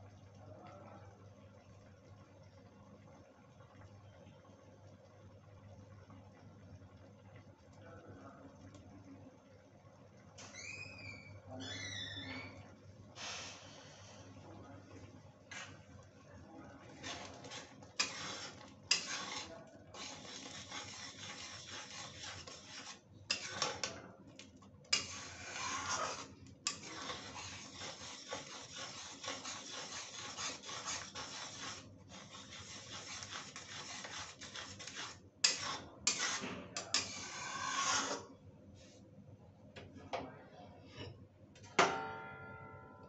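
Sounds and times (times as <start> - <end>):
metal spatula scraping a pan: 16.8 - 24.0, 24.9 - 38.3.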